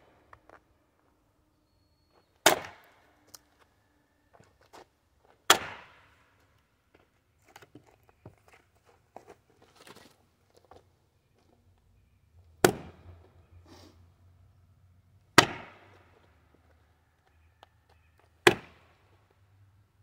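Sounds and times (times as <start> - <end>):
axe splitting log: 2.4 - 2.9, 5.5 - 6.1, 12.6 - 13.1, 15.4 - 16.1, 18.4 - 18.9.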